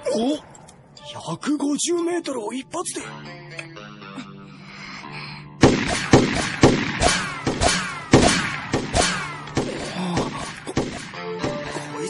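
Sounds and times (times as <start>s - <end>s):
rifle shots with ringing: 5.6s - 9.8s.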